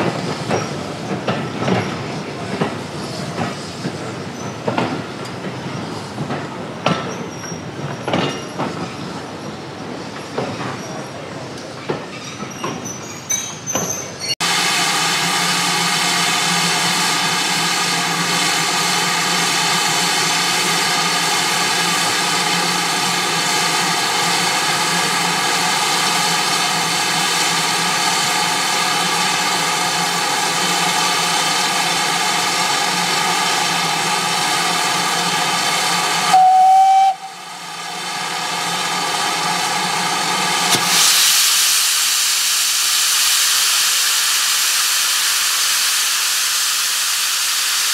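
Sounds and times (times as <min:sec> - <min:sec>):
drain cocks hissing steam: 0:14.4 - 0:47.9
steam hissing: 0:14.4 - 0:47.9
steam whistle blast: 0:36.3 - 0:37.5.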